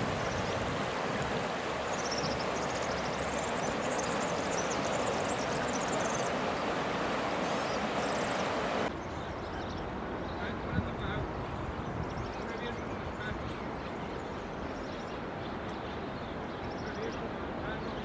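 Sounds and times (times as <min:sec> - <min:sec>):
floodwater rushing: 0:00.0 - 0:08.9.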